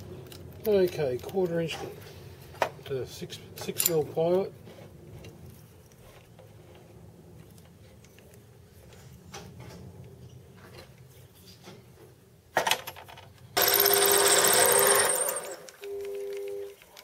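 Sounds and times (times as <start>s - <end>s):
lathe machine hum: 13.6s - 15.6s
harsh high-pitched ringing: 13.6s - 15.8s.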